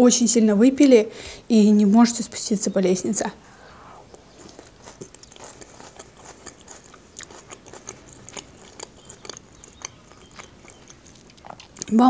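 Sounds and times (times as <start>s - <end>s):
chewing crunchy salad: 4.1s - 12.0s.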